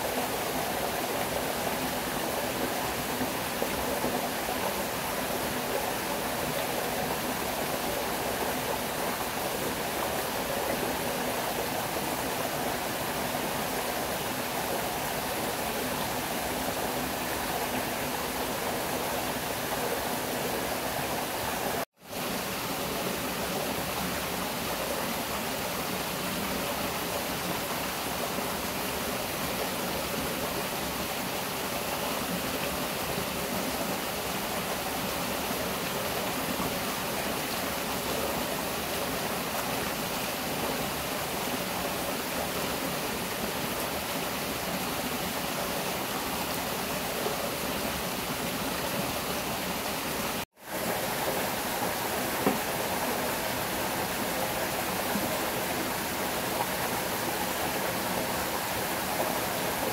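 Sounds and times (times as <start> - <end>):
stream water flowing: 0.0 - 59.9.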